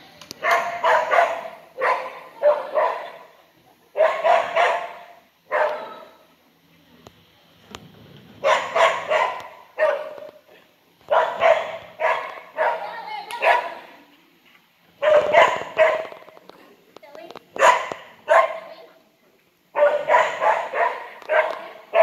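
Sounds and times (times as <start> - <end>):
dog barking: 0.4 - 3.3, 4.0 - 6.0, 8.4 - 10.3, 11.1 - 13.9, 15.0 - 16.2, 17.6 - 18.7, 19.7 - 22.0.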